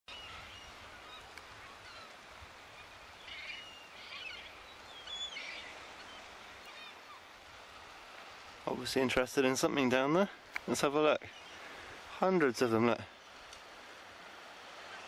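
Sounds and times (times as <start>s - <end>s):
gulls calling: 0.1s - 8.3s, 10.6s - 13.5s, 14.6s - 15.0s
faint hiss: 0.1s - 15.0s.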